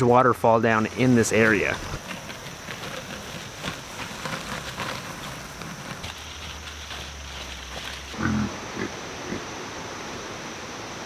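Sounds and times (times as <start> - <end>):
wheelbarrow crackling on wet grass: 0.4 - 9.4
footsteps on grass: 0.8 - 8.4.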